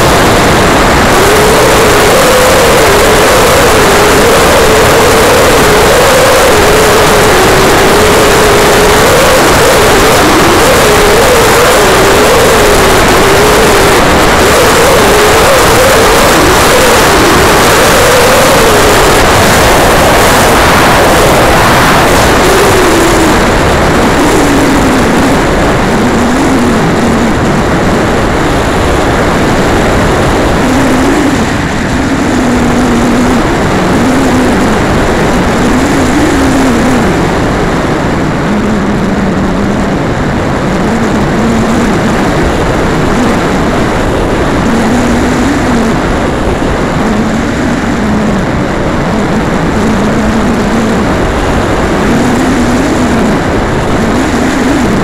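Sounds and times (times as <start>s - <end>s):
propeller engine drone: 0.0s - 55.0s
wind rush over microphone: 0.0s - 55.0s.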